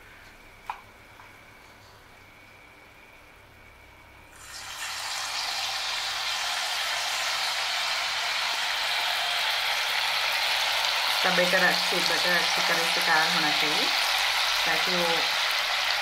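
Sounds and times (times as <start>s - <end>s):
batter sizzling in hot oil: 4.3s - 16.0s.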